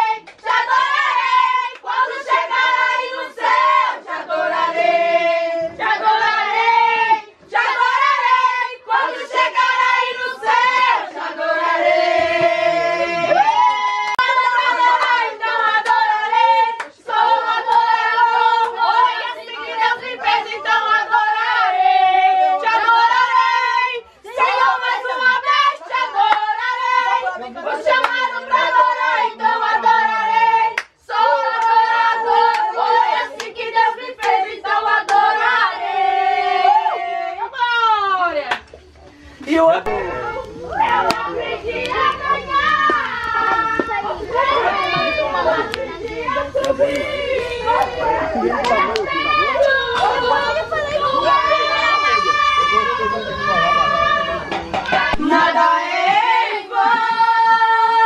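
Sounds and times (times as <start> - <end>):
group singing worship song: 0.0 - 37.8, 39.6 - 58.0
handclaps: 30.8 - 31.0.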